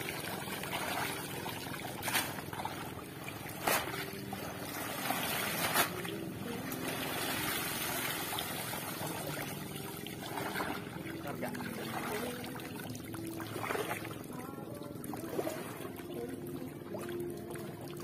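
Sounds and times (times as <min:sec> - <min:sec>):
water splashing off fishing net: 0:00.0 - 0:11.0.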